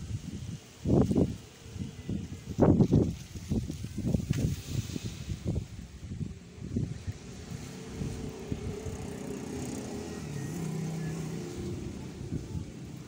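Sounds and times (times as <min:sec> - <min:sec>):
vehicle engine running: 0:06.2 - 0:13.0.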